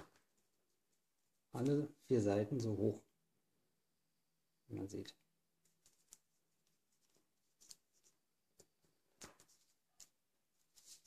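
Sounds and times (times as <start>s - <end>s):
paper crinkling and creasing: 5.6s - 11.0s.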